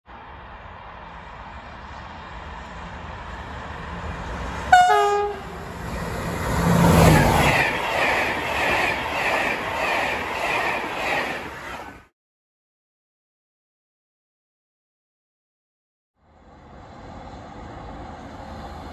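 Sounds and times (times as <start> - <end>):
train horn blast: 4.7 - 5.7.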